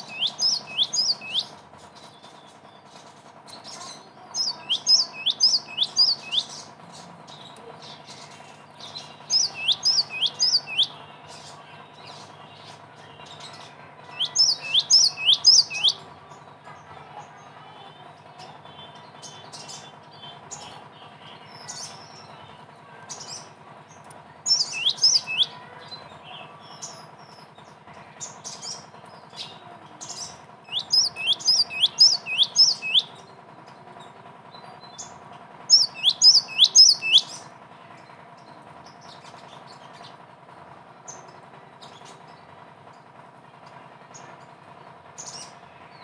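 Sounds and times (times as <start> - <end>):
bird whistled notes: 0.0 - 2.6, 3.6 - 6.7, 8.8 - 11.4, 13.2 - 16.0, 24.5 - 25.7, 29.4 - 33.2, 35.7 - 37.4.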